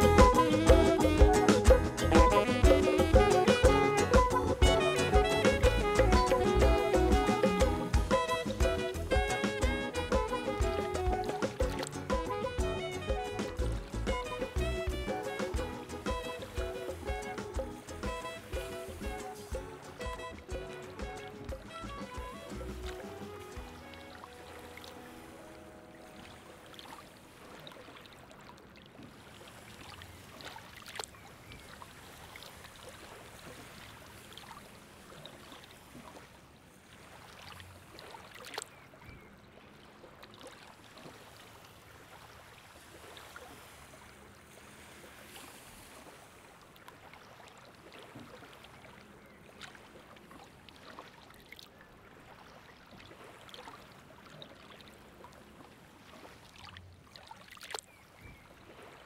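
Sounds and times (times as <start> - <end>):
river water lapping: 0.0 - 59.0
small ticks and splashes: 22.8 - 25.3, 26.1 - 59.0.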